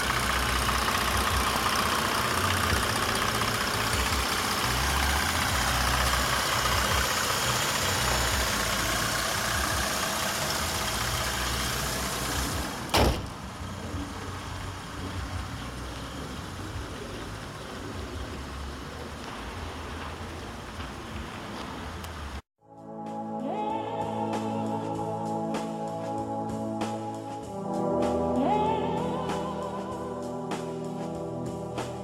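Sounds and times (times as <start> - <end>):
car engine idling: 0.0 - 22.4
bonnet slamming shut: 12.9 - 13.4.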